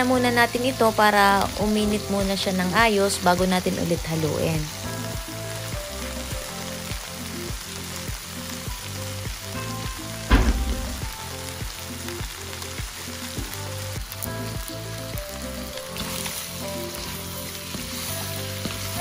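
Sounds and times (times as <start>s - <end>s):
meat sizzling in a pan: 0.0s - 19.0s
sharp knock: 10.3s - 11.2s.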